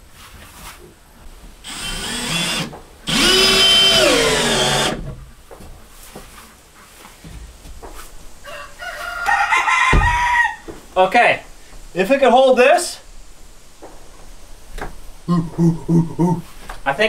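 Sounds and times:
cordless drill driving screws: 0:01.6 - 0:05.1.

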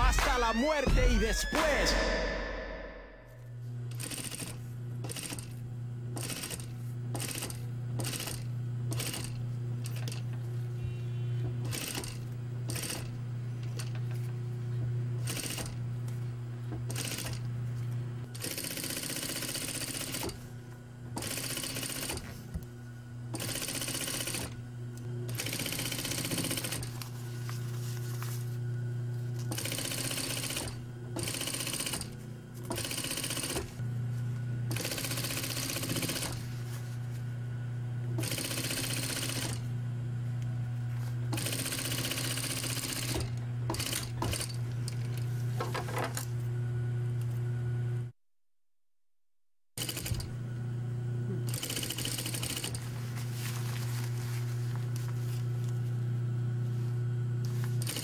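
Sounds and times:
low machine hum: 0:00.0 - 0:18.4, 0:19.6 - 0:48.1, 0:50.1 - 0:51.7, 0:52.8 - 0:57.8
sewing machine stitching: 0:03.9 - 0:10.4, 0:11.6 - 0:14.0, 0:15.2 - 0:15.8, 0:16.9 - 0:17.4, 0:18.4 - 0:20.4, 0:21.2 - 0:22.3, 0:23.4 - 0:24.6, 0:25.3 - 0:27.0, 0:29.4 - 0:33.8, 0:34.7 - 0:36.5, 0:38.2 - 0:39.7, 0:41.3 - 0:45.0, 0:49.8 - 0:50.3, 0:51.5 - 0:52.8, 0:57.8 - 0:58.0.

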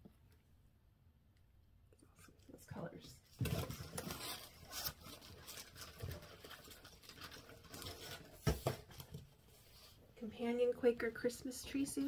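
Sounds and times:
cardboard box crackling: 0:03.4 - 0:09.2
plastic bags rustling: 0:03.4 - 0:09.2.

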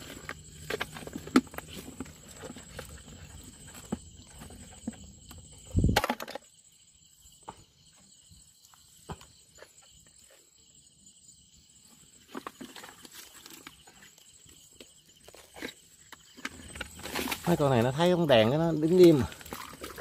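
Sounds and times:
clicks and knocks in mud: 0:00.0 - 0:05.0, 0:14.7 - 0:20.0.

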